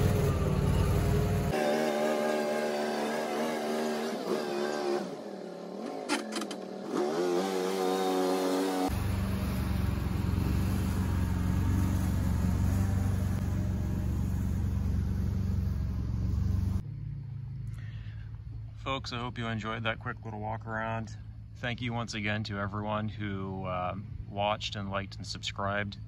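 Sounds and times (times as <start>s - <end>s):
vehicle engine revving: 0.0s - 18.8s
low rumble with hiss: 8.9s - 26.0s.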